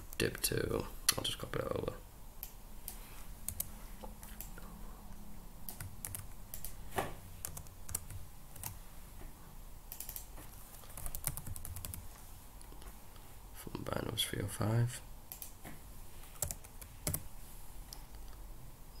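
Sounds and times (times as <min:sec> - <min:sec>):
computer mouse clicks: 0:02.4 - 0:04.6, 0:05.7 - 0:06.8, 0:09.9 - 0:12.0, 0:15.3 - 0:15.6
computer keyboard typing: 0:03.4 - 0:04.6, 0:05.6 - 0:06.8, 0:07.4 - 0:08.8, 0:09.9 - 0:12.0, 0:16.3 - 0:17.3.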